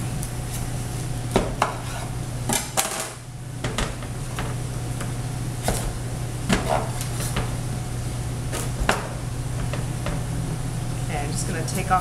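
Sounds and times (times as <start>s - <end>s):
person talking: 11.1s - 12.0s.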